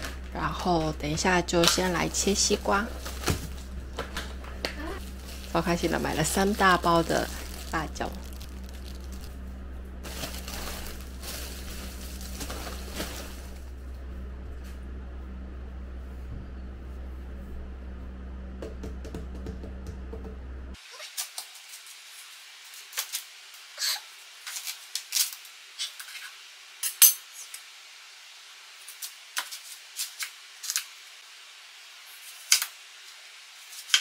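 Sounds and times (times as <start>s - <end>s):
steady low hum: 0.0s - 20.8s.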